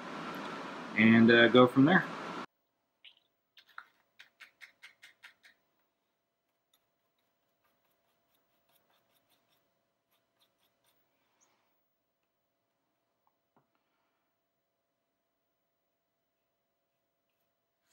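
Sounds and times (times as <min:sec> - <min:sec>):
faint steady hum: 0:00.0 - 0:04.0.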